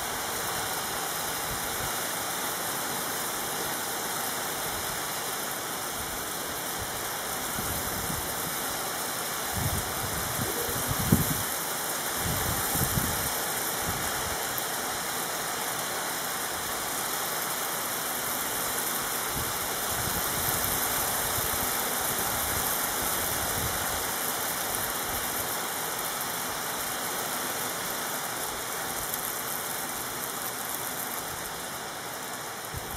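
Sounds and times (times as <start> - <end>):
hail falling on roofs: 0.1 - 32.9.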